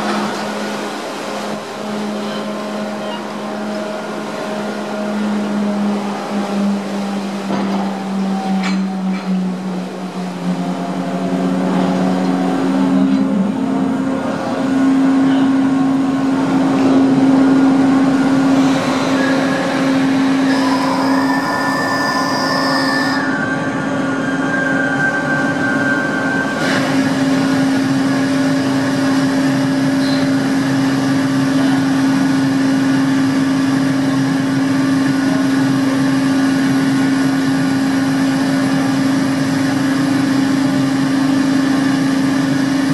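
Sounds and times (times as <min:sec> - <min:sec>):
ferry engines humming: 0:00.0 - 0:42.9
high whining tones: 0:17.8 - 0:26.6.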